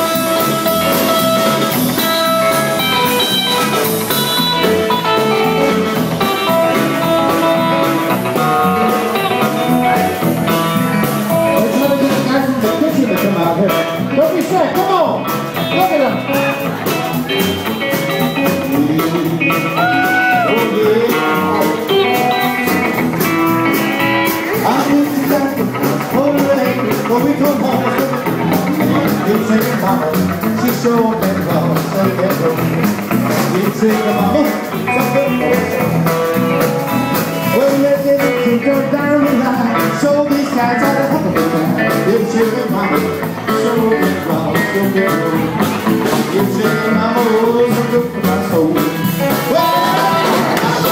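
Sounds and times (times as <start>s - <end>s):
bass: 0.0s - 50.9s
drums: 0.0s - 50.9s
electric guitar: 0.0s - 50.9s
man singing: 11.0s - 22.8s, 24.3s - 36.4s, 37.1s - 50.9s.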